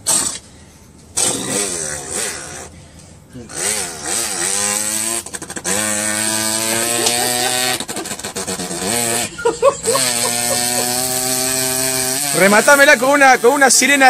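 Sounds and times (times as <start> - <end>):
boy imitating motorbike: 1.2 - 2.7, 3.4 - 12.7.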